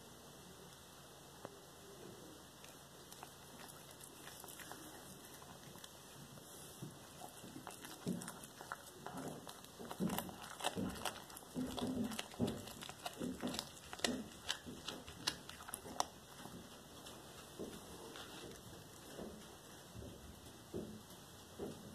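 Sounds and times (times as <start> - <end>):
cat chewing wetly: 2.5 - 21.7
teeth clicking on bone: 7.2 - 16.7.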